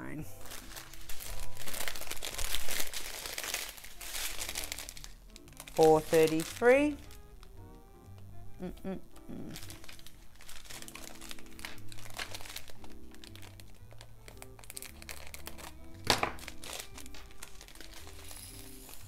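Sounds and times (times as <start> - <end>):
soft background music: 0.0 - 19.0
plastic bags crinkling: 0.3 - 8.3, 9.2 - 19.0.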